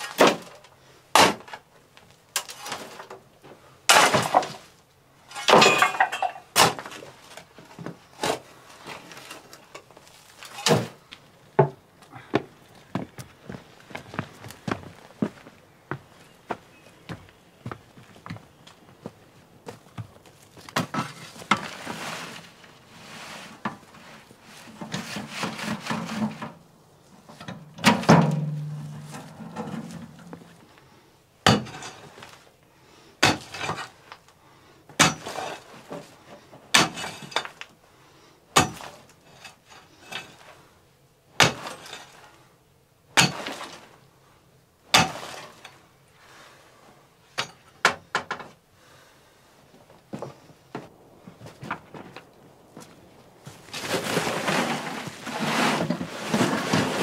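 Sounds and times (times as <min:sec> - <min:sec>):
scraping: 0:27.2 - 0:30.8, 0:50.2 - 0:57.0.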